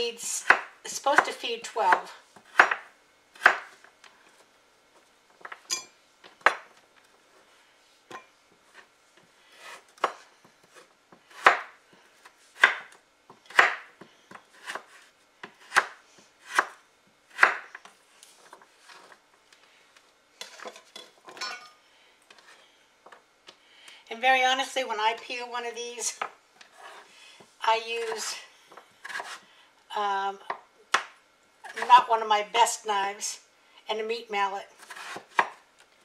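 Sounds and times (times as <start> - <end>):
knife chopping on wooden board: 2.5 - 3.8, 9.7 - 11.7, 12.6 - 13.9, 14.5 - 16.8, 17.4 - 17.7, 29.0 - 29.4.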